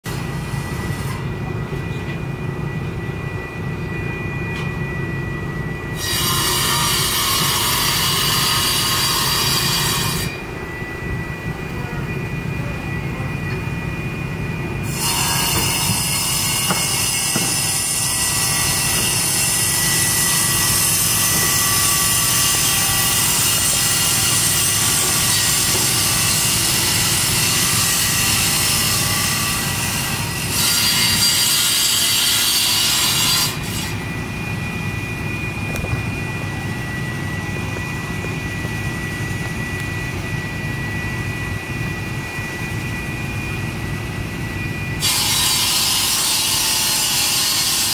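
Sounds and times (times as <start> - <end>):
steady low hum: 0.1 - 30.6, 31.4 - 45.0
power saw cutting: 6.0 - 10.4, 14.8 - 34.2, 44.9 - 47.9.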